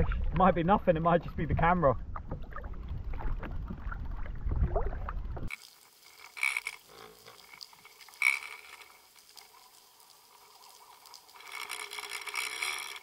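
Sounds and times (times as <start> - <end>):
faint underwater hiss: 5.5 - 13.0.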